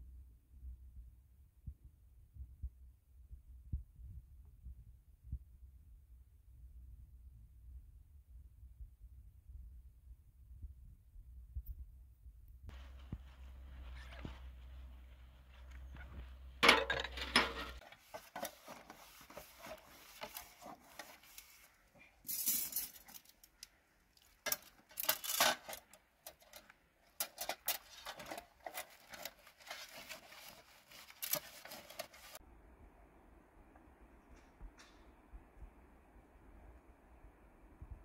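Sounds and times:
metal dishes clinking: 16.6 - 17.8.

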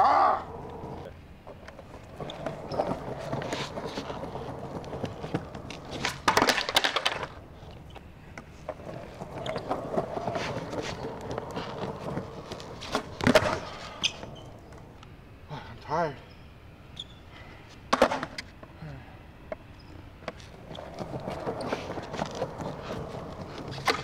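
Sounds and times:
skateboard wheels rolling on concrete: 0.0 - 24.0
skateboard clattering on ground: 1.5 - 14.9, 17.9 - 18.5, 20.2 - 24.0
skateboard smacking concrete: 2.1 - 7.4, 8.8 - 14.3, 17.9 - 18.5, 20.3 - 24.0.

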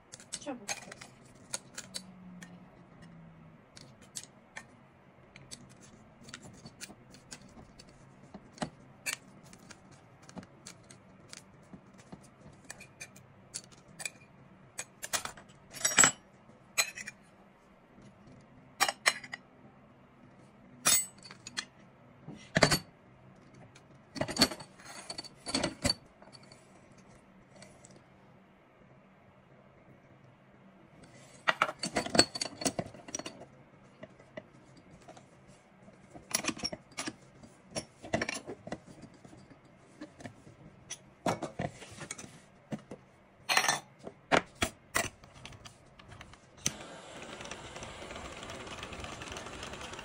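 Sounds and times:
metal and crockery clinks: 14.8 - 16.2.

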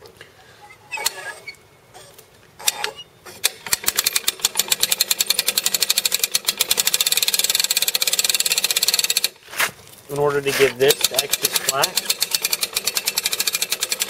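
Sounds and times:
ratchet winch clicking: 2.6 - 9.4, 10.8 - 14.0.

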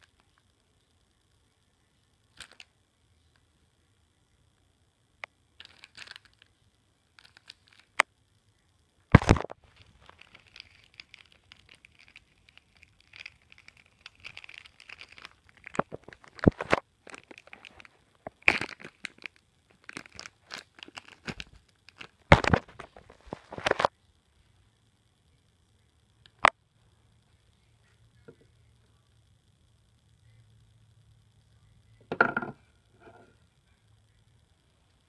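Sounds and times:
plastic wrapping crinkling: 5.6 - 6.5, 7.2 - 8.0, 9.1 - 23.9.

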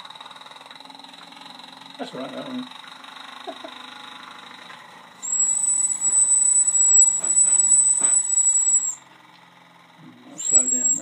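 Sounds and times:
high-pitched steam whistle: 5.2 - 9.0, 10.4 - 11.0.

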